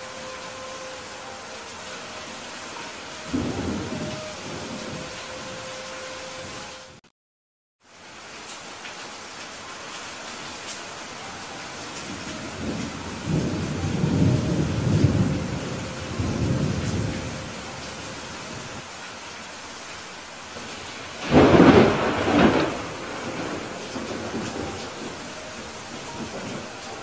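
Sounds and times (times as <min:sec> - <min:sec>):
thunder rumbling: 0:00.0 - 0:05.7, 0:12.0 - 0:18.8, 0:20.6 - 0:27.0
heavy rain: 0:00.0 - 0:07.0, 0:07.8 - 0:27.0
loud thunderclap: 0:21.2 - 0:25.2.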